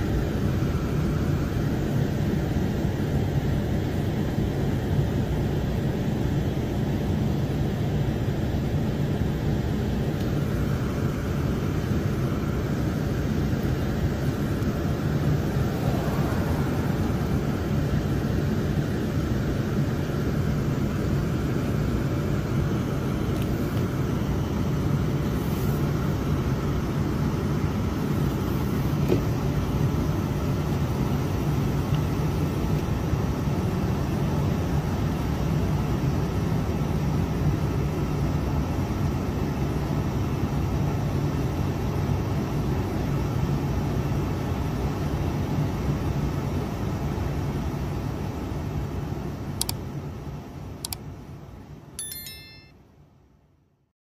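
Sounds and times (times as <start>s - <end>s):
diesel truck engine drone: 0.0s - 35.1s.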